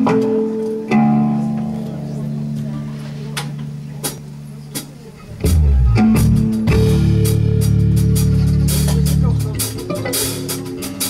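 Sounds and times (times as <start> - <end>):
blues band playing: 0.0 - 11.0
drum hits: 3.5 - 11.0.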